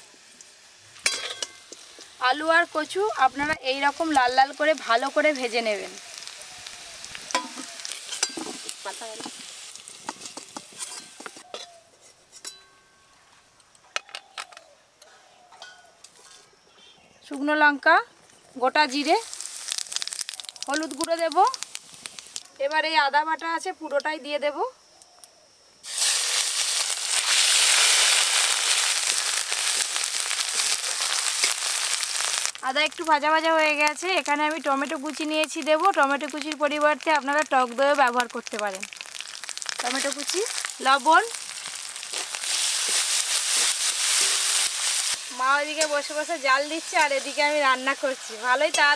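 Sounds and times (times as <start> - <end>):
hot oil sizzling: 0.0 - 11.6, 18.5 - 23.2, 25.8 - 48.9
metal spoon clinking and scraping: 1.0 - 1.8, 7.3 - 8.7, 10.1 - 13.0.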